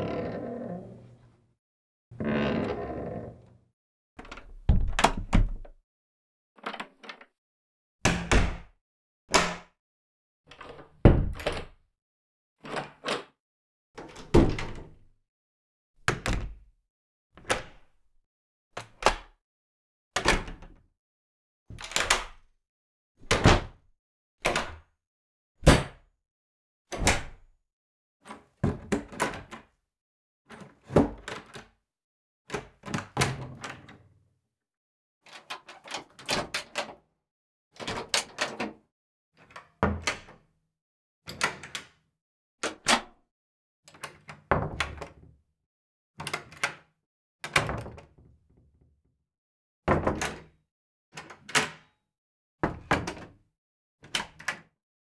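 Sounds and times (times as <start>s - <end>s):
door shutting: 4.2s - 5.6s
door latch clicks and knocks: 4.2s - 5.7s.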